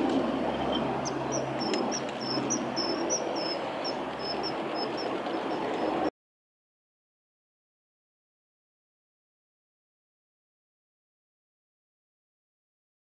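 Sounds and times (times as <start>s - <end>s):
low background rumble: 0.0s - 6.1s
kingfisher piping calls: 0.3s - 6.1s.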